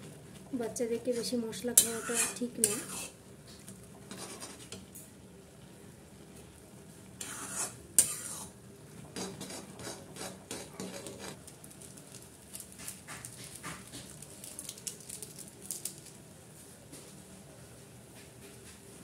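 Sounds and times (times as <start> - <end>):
spatula scraping metal pan: 1.8 - 3.2, 4.1 - 4.7, 7.2 - 8.5, 9.2 - 11.4
foil sachet crinkling: 11.0 - 16.3.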